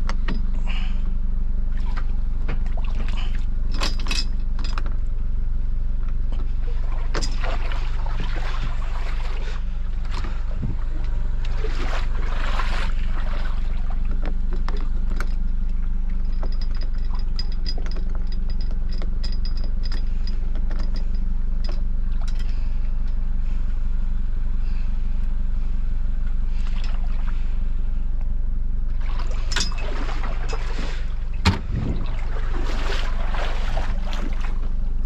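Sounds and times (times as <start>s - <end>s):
car engine idling: 0.0s - 33.4s
hand winch clicking: 16.1s - 23.2s.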